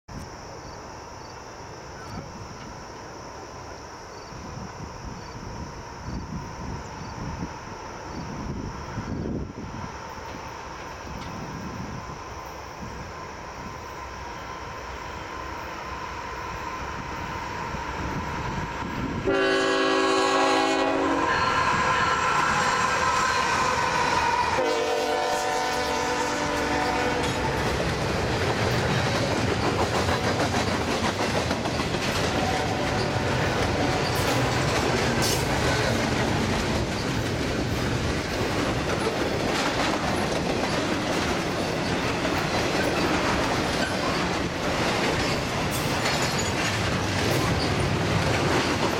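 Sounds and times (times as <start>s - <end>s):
train horn blasts: 19.2s - 27.7s, 32.3s - 34.4s
locomotive engines: 21.4s - 48.9s
train wheel clatter: 26.4s - 48.9s.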